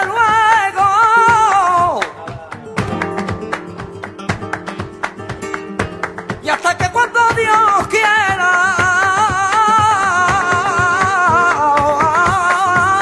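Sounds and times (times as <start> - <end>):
strummed acoustic guitar: 0.1 - 13.0.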